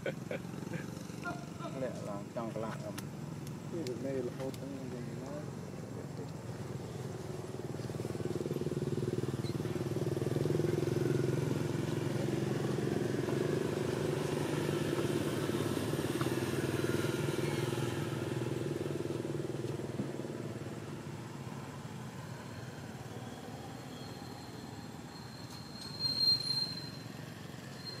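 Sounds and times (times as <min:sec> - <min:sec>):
motorcycle engine passing: 0:00.0 - 0:02.6, 0:04.9 - 0:23.8.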